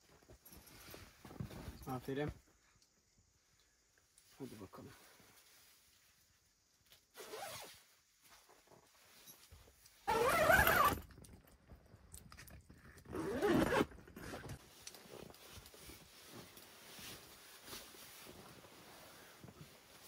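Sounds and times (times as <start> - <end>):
faint fabric rustling: 4.3 - 11.0, 13.4 - 20.0
zipper pulled: 7.2 - 7.8, 10.1 - 11.1, 13.1 - 14.5.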